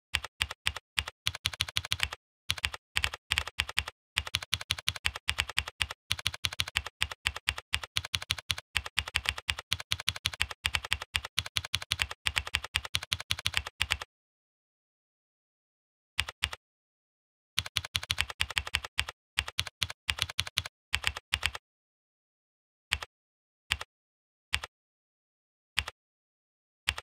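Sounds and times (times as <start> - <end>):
typing on a keyboard: 0.2 - 14.1, 17.6 - 21.6.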